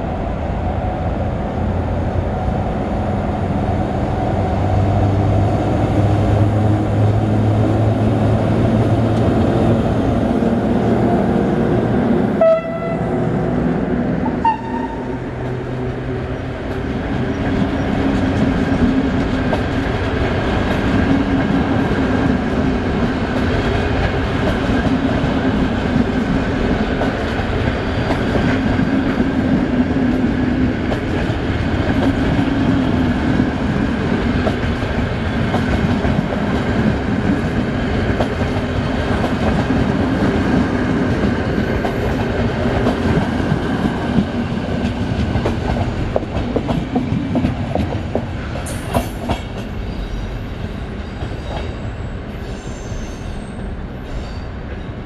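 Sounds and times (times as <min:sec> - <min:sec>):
train wheels rumbling on rails: 0:00.0 - 0:55.0
wheels clickety-clack: 0:16.7 - 0:21.7, 0:22.9 - 0:49.8.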